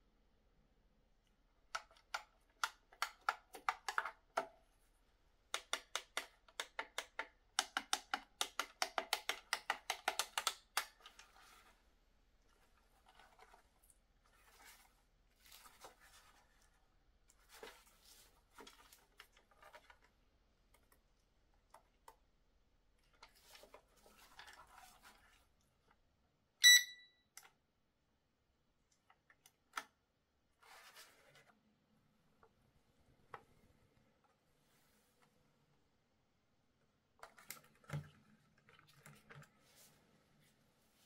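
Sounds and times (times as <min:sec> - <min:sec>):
soft plastic rustles: 0:10.9 - 0:22.0, 0:22.9 - 0:26.1, 0:30.6 - 0:31.6, 0:32.4 - 0:35.8, 0:37.1 - 0:41.0
high electronic beep: 0:26.6 - 0:27.2.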